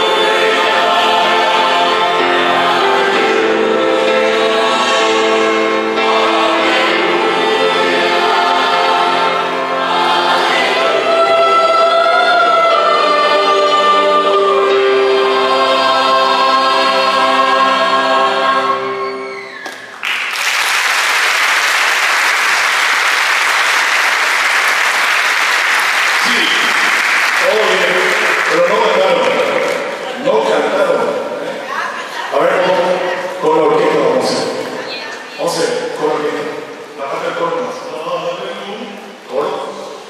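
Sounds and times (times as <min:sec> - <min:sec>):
mixed choir singing: 0:00.0 - 0:19.6, 0:22.2 - 0:40.0
audience applause: 0:19.6 - 0:30.2.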